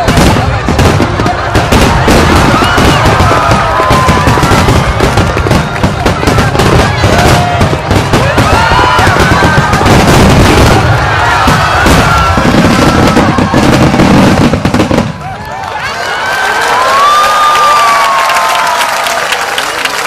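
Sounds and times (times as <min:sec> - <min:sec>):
fireworks bangs and crackling: 0:00.0 - 0:15.8.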